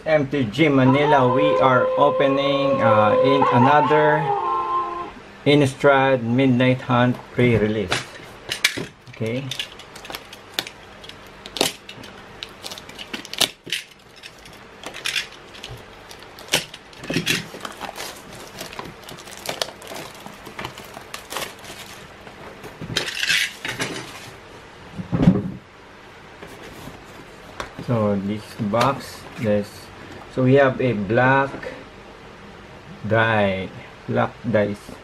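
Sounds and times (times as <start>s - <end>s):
shrink wrap crinkling: 9.0s - 24.4s
blade slitting plastic: 9.6s - 24.1s.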